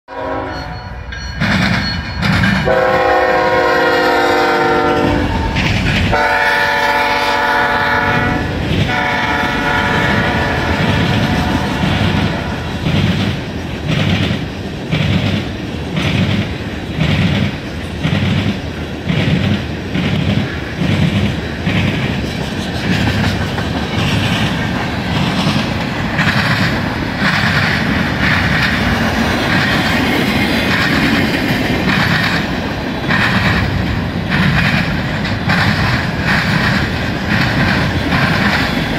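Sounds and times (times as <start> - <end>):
locomotive air horn: 0.1 - 1.0, 2.6 - 12.7
rolling rail noise: 0.1 - 38.9
train wheels clickety-clack: 0.2 - 38.9.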